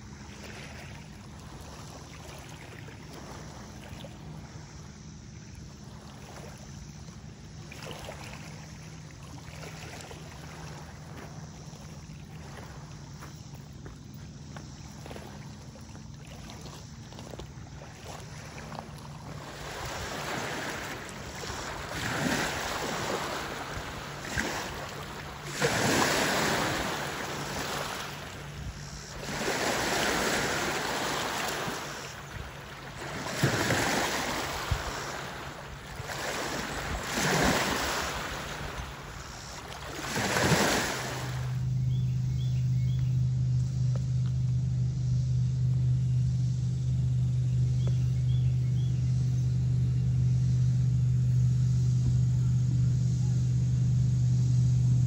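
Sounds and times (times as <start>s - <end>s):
steady low hum: 0.0s - 55.0s
small waves on pebble shore: 14.8s - 41.7s.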